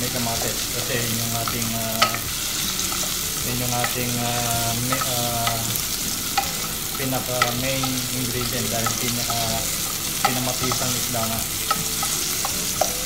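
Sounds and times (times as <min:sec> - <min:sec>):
food sizzling in oil: 0:00.0 - 0:13.0
spoon clinking against pot: 0:04.8 - 0:13.0.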